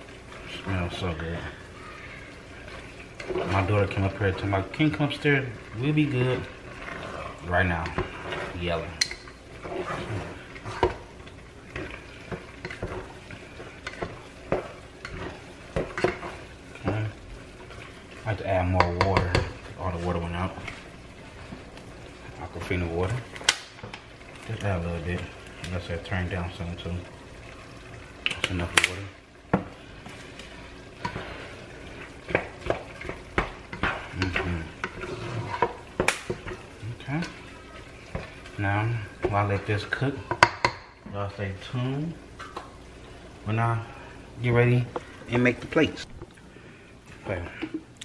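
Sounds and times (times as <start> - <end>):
light sizzle: 0.0 - 48.0
metal utensil scraping a pot: 2.6 - 17.0, 30.3 - 38.4.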